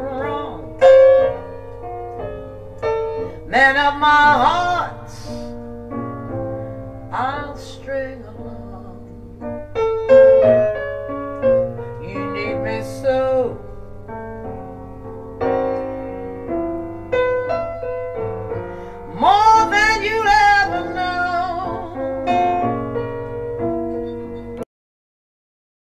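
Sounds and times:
woman singing with vibrato: 0:00.0 - 0:00.9, 0:03.5 - 0:05.5, 0:07.1 - 0:09.1, 0:12.0 - 0:13.6, 0:19.1 - 0:22.1
piano accompaniment: 0:00.0 - 0:24.7.

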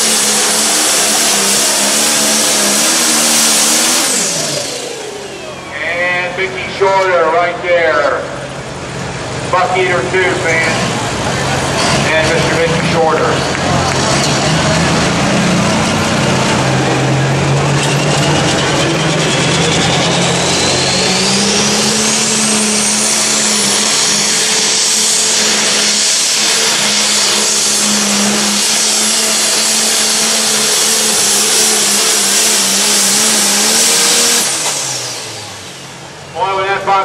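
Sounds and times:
diesel engine running flat out: 0:00.0 - 0:37.0
high turbo whine: 0:00.0 - 0:37.0.

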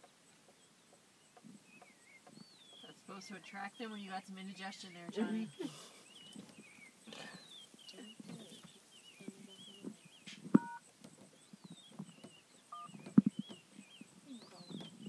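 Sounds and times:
brief two-tone beep: 0:10.6 - 0:10.8.

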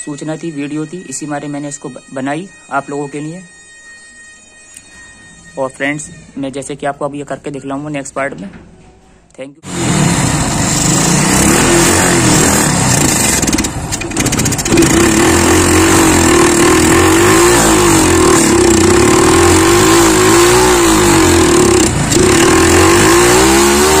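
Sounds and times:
motorcycle engine revving: 0:09.6 - 0:24.0.

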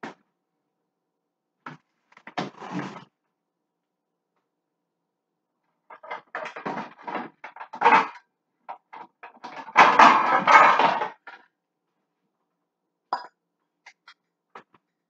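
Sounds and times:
pans and utensils clattering: 0:09.0 - 0:11.3.

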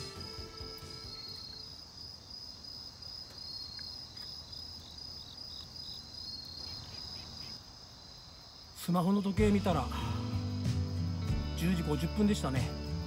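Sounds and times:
night insects chorus: 0:00.0 - 0:13.0
insect short chirps: 0:03.1 - 0:08.4.

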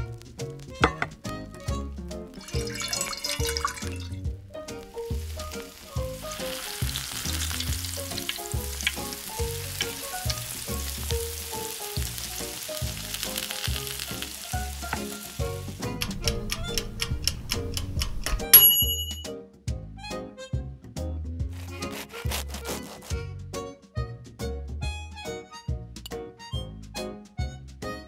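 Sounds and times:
oil sizzling and crackling: 0:00.0 - 0:18.2, 0:21.5 - 0:23.2.

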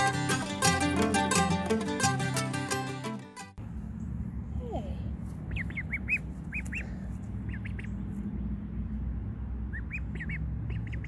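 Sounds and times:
ducklings peeping: 0:05.4 - 0:08.3, 0:09.6 - 0:11.0.

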